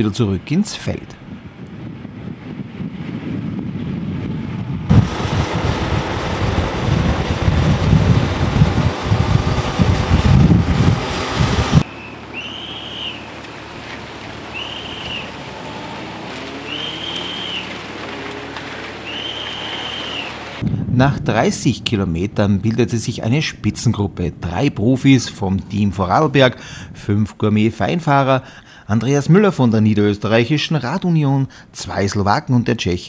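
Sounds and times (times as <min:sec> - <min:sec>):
wind buffeting microphone: 0:00.0 - 0:31.0
high rising and falling tone: 0:04.6 - 0:22.4.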